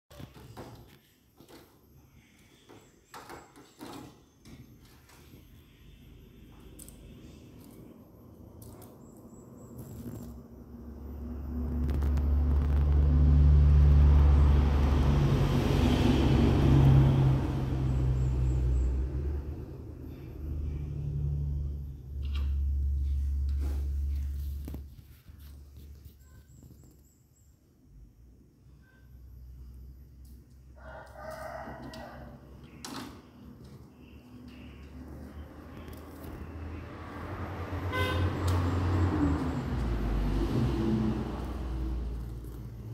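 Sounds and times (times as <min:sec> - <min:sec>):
vehicle engine passing: 0:09.2 - 0:26.1, 0:34.1 - 0:42.9
low rumble: 0:10.6 - 0:17.3
short horn toot: 0:37.9 - 0:38.4.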